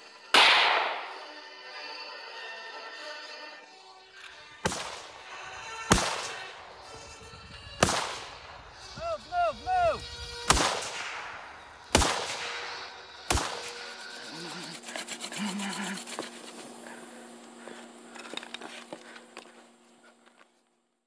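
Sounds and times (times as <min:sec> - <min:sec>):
rifle shots with echo: 0:00.3 - 0:01.2, 0:04.6 - 0:05.2, 0:05.9 - 0:06.8, 0:07.8 - 0:08.6, 0:10.5 - 0:13.8.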